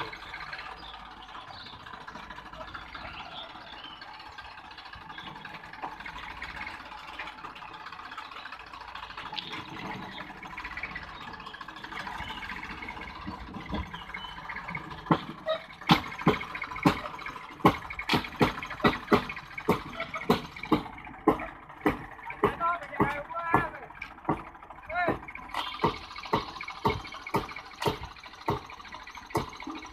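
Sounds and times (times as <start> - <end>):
diesel engine running: 0.0 - 29.9
loud sharp clacks on track: 14.6 - 29.8.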